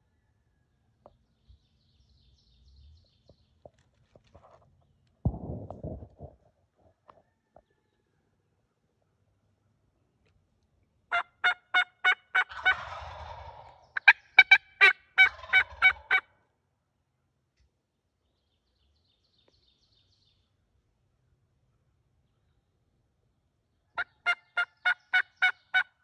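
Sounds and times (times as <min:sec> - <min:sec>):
turkeys gobbling and calling: 0:11.1 - 0:16.4, 0:23.9 - 0:26.0.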